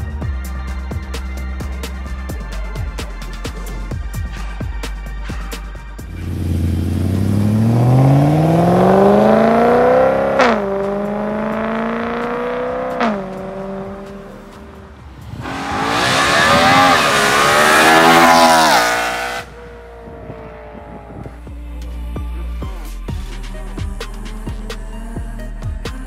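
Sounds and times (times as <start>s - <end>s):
rush of engine and road noise: 3.1s - 23.2s
car engine accelerating: 6.1s - 22.7s.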